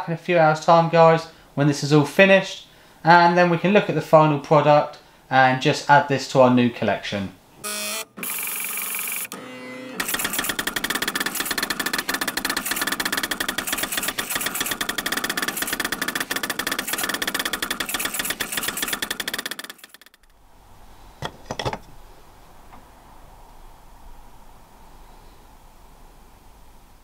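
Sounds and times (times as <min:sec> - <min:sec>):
printer hiss: 0:07.6 - 0:20.0
printer motors chattering: 0:07.6 - 0:20.2.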